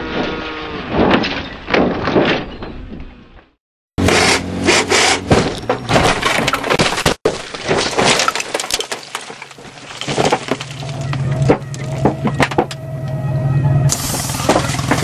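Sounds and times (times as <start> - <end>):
crunching impacts: 0.0 - 12.8, 13.9 - 15.0
glass breaking: 5.5 - 12.7.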